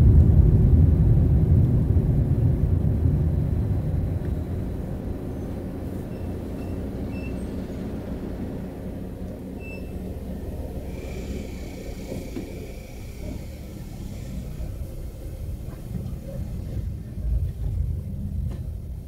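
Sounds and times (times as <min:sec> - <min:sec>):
traffic rumble: 0:00.0 - 0:19.0
vehicle passing: 0:04.4 - 0:18.4.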